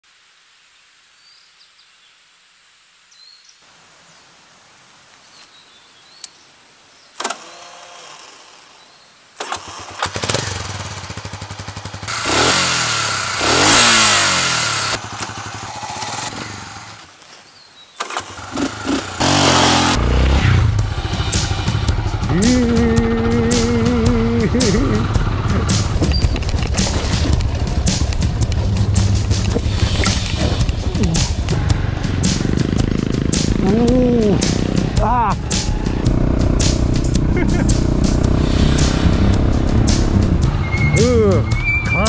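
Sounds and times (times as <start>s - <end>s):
motorcycle engine cranking: 9.4s - 17.1s, 18.0s - 20.0s, 22.2s - 38.4s
motorcycle engine revving: 9.4s - 17.1s, 18.0s - 42.0s.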